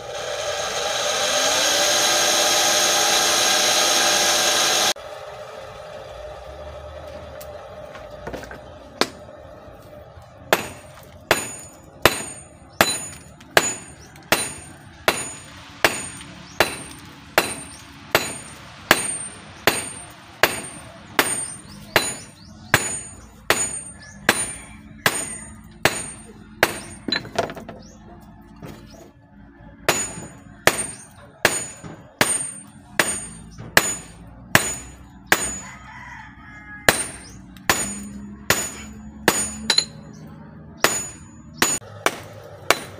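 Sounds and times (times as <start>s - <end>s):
hammer ringing on anvil: 10.5s - 27.3s, 29.9s - 36.0s, 36.8s - 40.2s, 40.8s - 42.9s.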